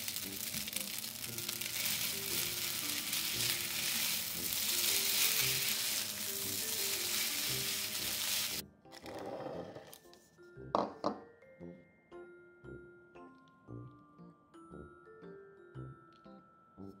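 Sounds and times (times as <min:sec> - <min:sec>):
food sizzling in a frying pan: 0:00.0 - 0:08.6.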